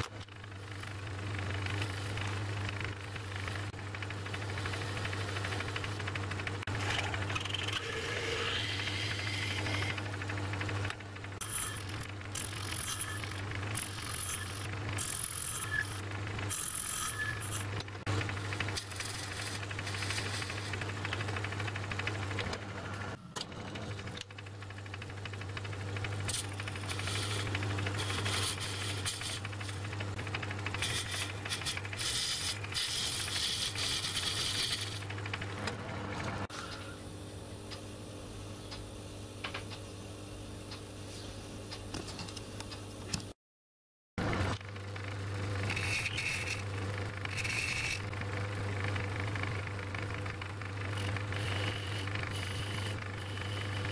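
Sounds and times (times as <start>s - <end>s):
cutting tool scraping metal: 11.4s - 17.8s, 26.3s - 29.8s, 30.8s - 35.1s, 45.6s - 48.1s
lathe motor humming: 24.3s - 36.5s, 46.2s - 53.9s.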